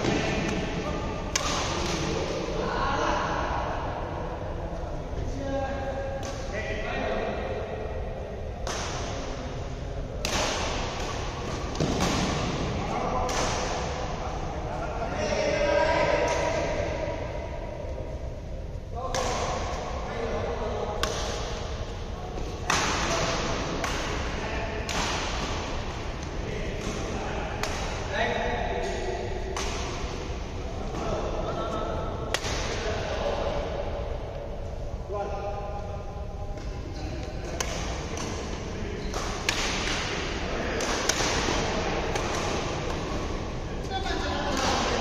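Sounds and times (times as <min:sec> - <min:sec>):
rackets hitting shuttlecock: 0:00.0 - 0:02.4, 0:10.2 - 0:14.1, 0:19.1 - 0:20.2, 0:20.9 - 0:28.1, 0:28.7 - 0:30.4, 0:32.2 - 0:32.9, 0:36.5 - 0:43.5
low background hum: 0:00.0 - 0:45.0
badminton racket hitting shuttlecock: 0:01.3 - 0:02.1.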